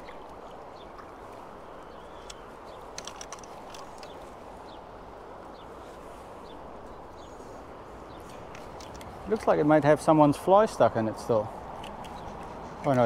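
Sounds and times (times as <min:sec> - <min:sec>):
small splashes and clicks: 0:00.0 - 0:04.4, 0:08.2 - 0:09.5, 0:11.7 - 0:13.0
flowing river water: 0:00.0 - 0:13.0.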